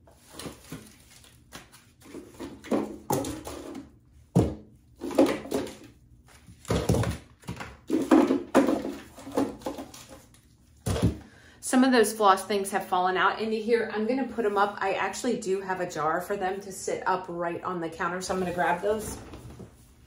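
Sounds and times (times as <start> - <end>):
toiletries clunking and rattling in drawer: 2.1 - 5.9, 6.8 - 10.1.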